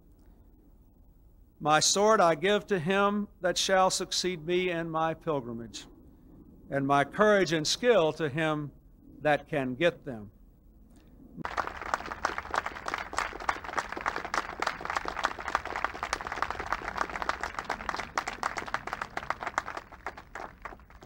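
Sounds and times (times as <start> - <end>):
audience applauding: 11.4 - 21.0.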